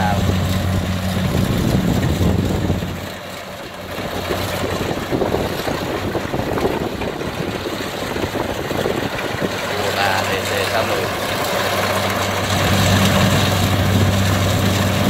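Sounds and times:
engine hum: 0.0 - 15.0
harvester rattling: 0.0 - 15.0.

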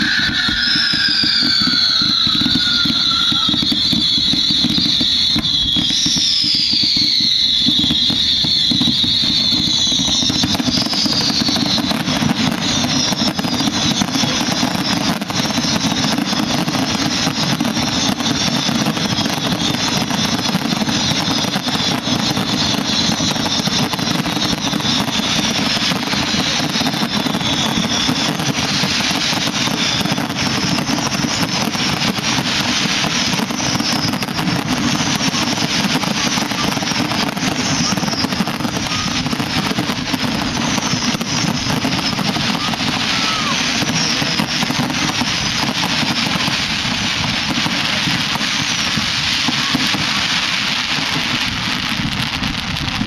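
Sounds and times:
fireworks bangs and crackles: 0.0 - 53.0.

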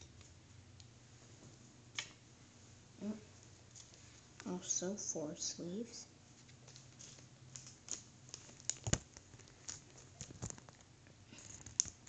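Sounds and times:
plastic sleeves crinkling: 6.3 - 12.0.

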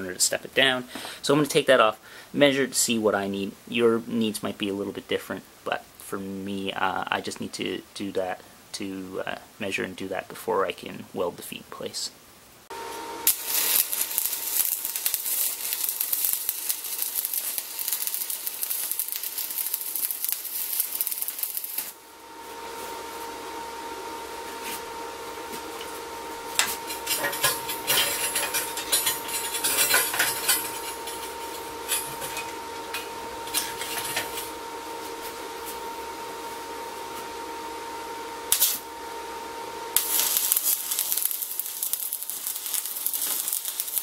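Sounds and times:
steady hum: 0.0 - 44.0
welding arc crackling: 13.1 - 23.3, 24.6 - 36.0, 38.4 - 38.9, 39.9 - 44.0.

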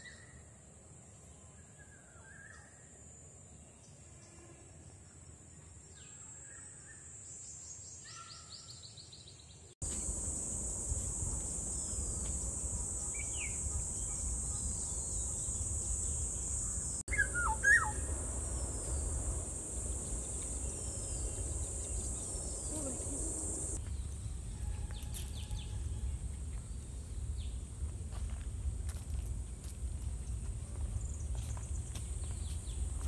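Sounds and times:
low rumble: 9.8 - 23.8
steady high-pitched hiss: 9.8 - 33.0
birds chirping: 9.9 - 23.8.

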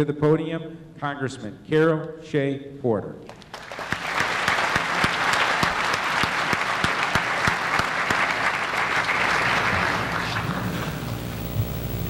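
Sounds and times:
close hands clapping steadily: 3.3 - 10.6
audience applauding: 3.3 - 11.7.

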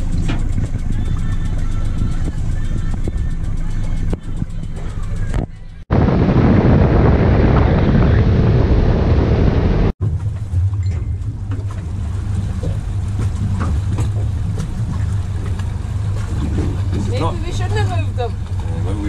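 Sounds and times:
boat engine idling hum: 0.0 - 7.2, 10.0 - 19.0
boat engine: 0.0 - 19.0
water noise: 0.0 - 19.0
wind buffeting microphone: 2.0 - 19.0.

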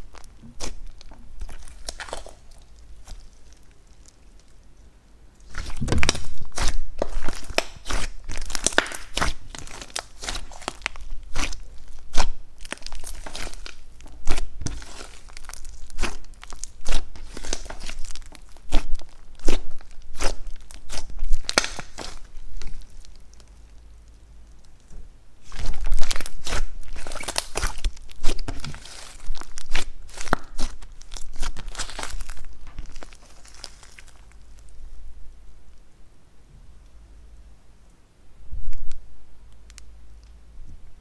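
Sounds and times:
slime being kneaded and popping: 0.0 - 4.6, 5.4 - 23.9, 25.4 - 34.8.

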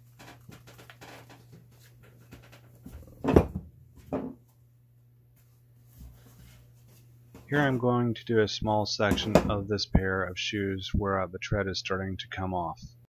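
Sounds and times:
steady low hum: 0.0 - 13.0
objects set down on workbench: 2.3 - 4.5.

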